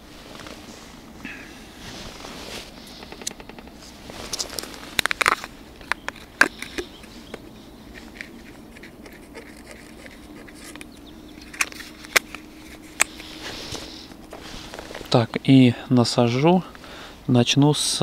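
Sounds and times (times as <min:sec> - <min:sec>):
jacket sleeve rustling: 0:00.0 - 0:02.9, 0:03.7 - 0:05.5, 0:11.6 - 0:15.2
handling clicks and taps: 0:02.9 - 0:03.8.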